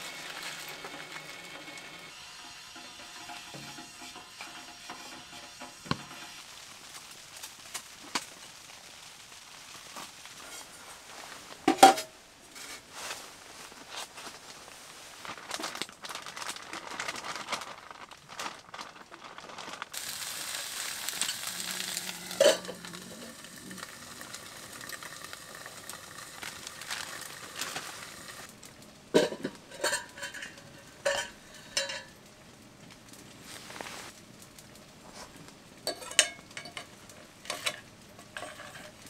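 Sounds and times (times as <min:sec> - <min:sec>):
meat sizzling in oil: 0:00.0 - 0:11.2, 0:19.9 - 0:32.5
metal utensils clinking on cookware: 0:02.4 - 0:06.4, 0:11.7 - 0:12.8, 0:21.1 - 0:26.0, 0:29.2 - 0:32.2, 0:35.8 - 0:39.0.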